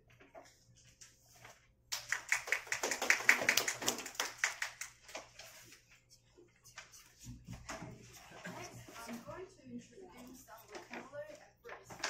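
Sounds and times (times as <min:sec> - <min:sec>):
people applauding: 0:01.9 - 0:05.0.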